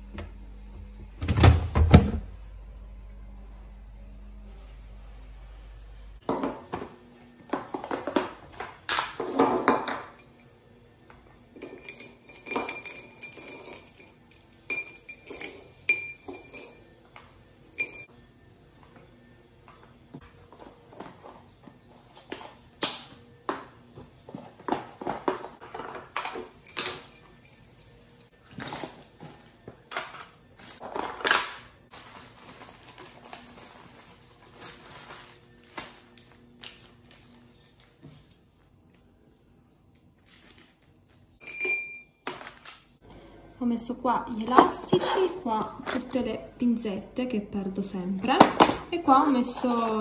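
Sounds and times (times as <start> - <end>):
steady low hum: 0.0 - 6.3.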